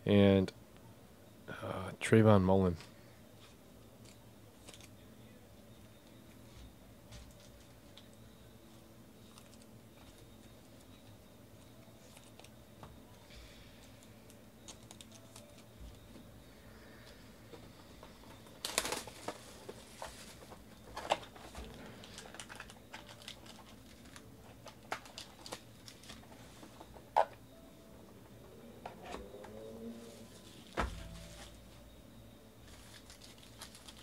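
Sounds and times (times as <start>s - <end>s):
plastic shrink wrap crinkling: 18.4s - 26.3s, 32.7s - 34.0s.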